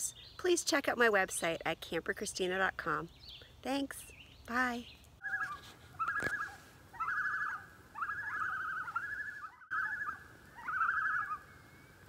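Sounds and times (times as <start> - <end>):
bird trilling: 5.2 - 12.0.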